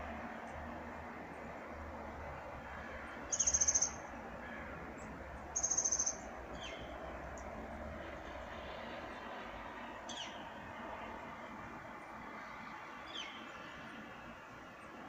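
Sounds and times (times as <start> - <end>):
faint high bird calls: 3.3 - 4.0, 5.6 - 6.9
small bird high trills: 3.3 - 4.0, 5.6 - 6.8.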